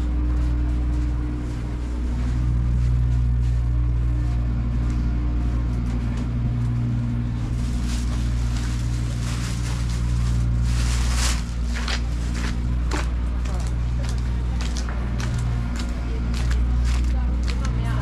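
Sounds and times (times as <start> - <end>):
low machine hum: 0.0 - 18.0.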